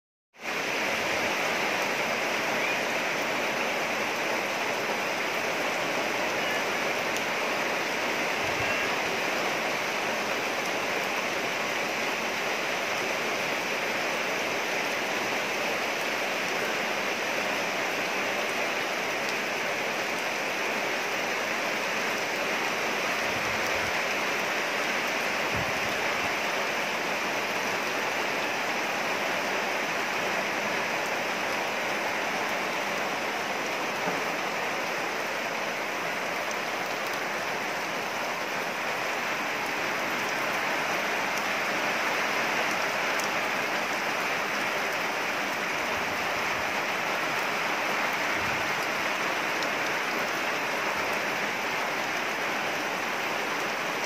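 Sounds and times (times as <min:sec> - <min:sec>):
steady rain falling: 0:00.4 - 0:54.0.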